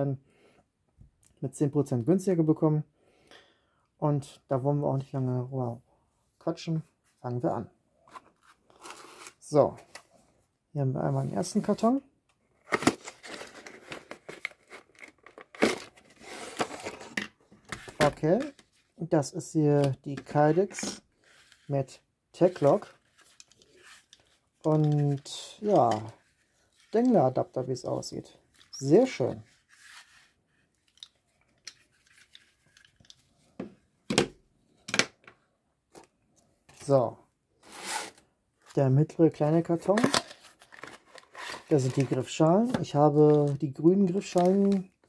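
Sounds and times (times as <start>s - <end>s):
paper cards rustling: 12.6s - 18.8s, 22.4s - 33.2s, 39.8s - 45.0s
cardboard box scraping: 37.6s - 38.2s.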